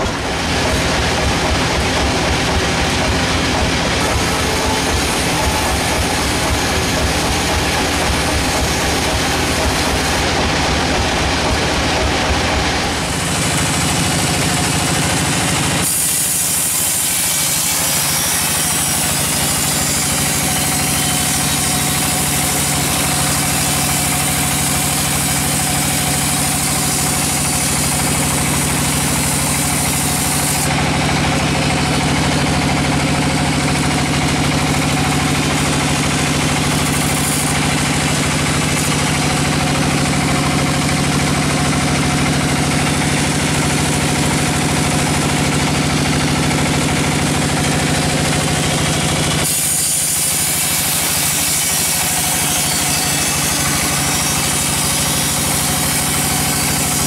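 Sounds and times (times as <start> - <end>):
band saw machine hum: 0.0 - 57.0
saw blade cutting log hiss: 12.9 - 30.7, 34.6 - 39.6, 49.4 - 57.0.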